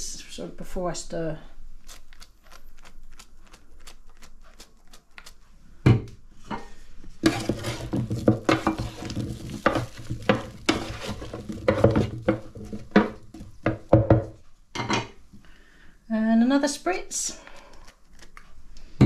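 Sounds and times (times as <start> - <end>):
spoon scraping drawer: 7.2 - 13.2
vegetables sizzling: 7.2 - 14.0
knock: 11.6 - 15.0.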